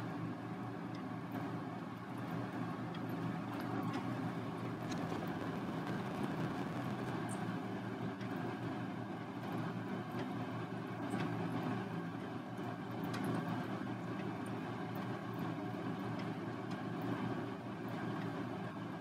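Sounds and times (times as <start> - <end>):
steady machine hum: 0.0 - 19.0.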